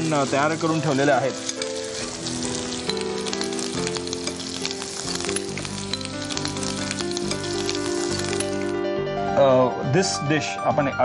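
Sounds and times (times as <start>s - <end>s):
batter being whisked: 0.0s - 8.7s
oil sizzling in frying pan: 0.0s - 8.8s
soft background music: 0.0s - 11.0s.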